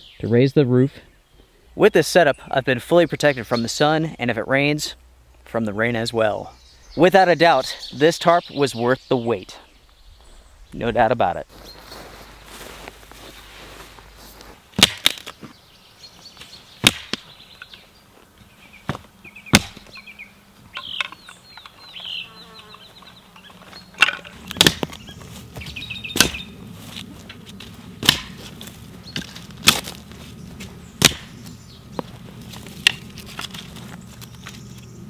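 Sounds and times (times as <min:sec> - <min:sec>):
faint bird chirp: 0:06.4 - 0:12.7, 0:15.3 - 0:26.6
dry sticks snapping: 0:14.8 - 0:15.5, 0:16.4 - 0:17.8, 0:18.9 - 0:19.9, 0:23.4 - 0:34.9.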